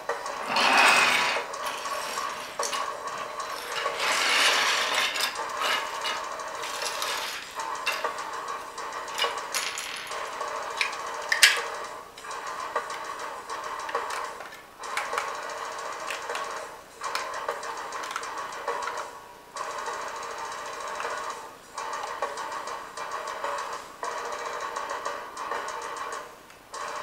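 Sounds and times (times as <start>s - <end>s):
plastic parts knocking and clicking: 4.8s - 19.0s.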